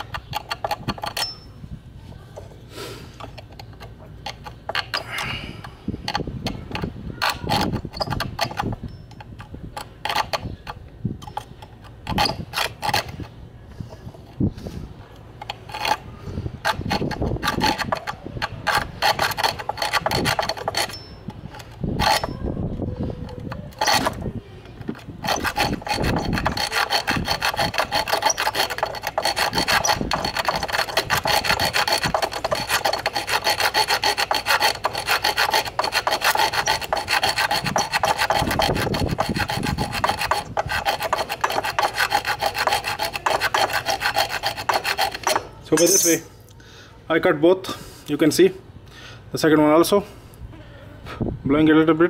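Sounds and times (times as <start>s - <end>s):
hacksaw rasping on metal screw: 0.0s - 1.5s, 3.2s - 13.4s, 15.4s - 22.4s, 23.2s - 24.2s, 24.8s - 46.2s.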